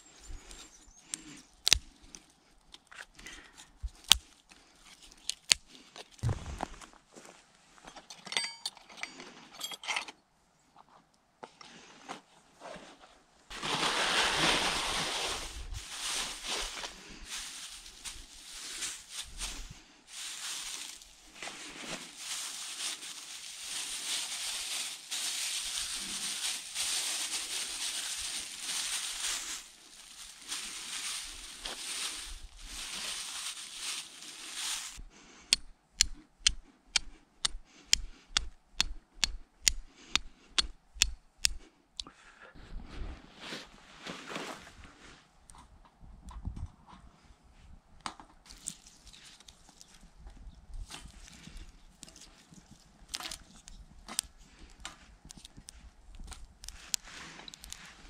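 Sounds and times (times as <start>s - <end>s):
twigs snapping: 0.4s - 6.4s, 15.9s - 41.6s, 48.5s - 50.1s, 50.8s - 57.9s
ringing clink of small gear: 8.1s - 10.1s
rustling on dry grass: 13.5s - 35.1s, 48.5s - 58.0s.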